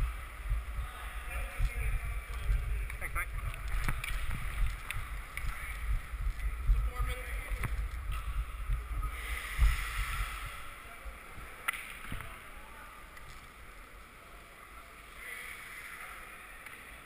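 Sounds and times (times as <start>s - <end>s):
wind rumble on microphone: 0.0s - 11.5s.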